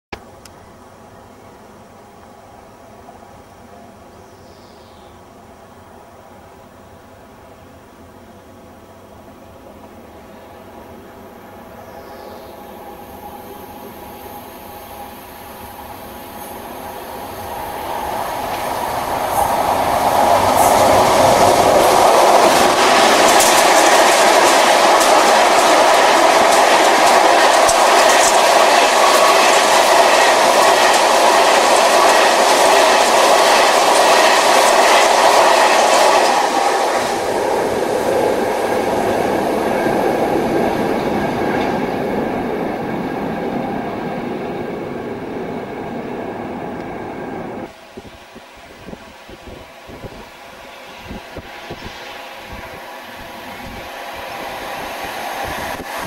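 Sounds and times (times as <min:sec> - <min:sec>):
diesel locomotives passing: 0:00.5 - 0:56.0
wheels clicking over rails: 0:17.9 - 0:37.8.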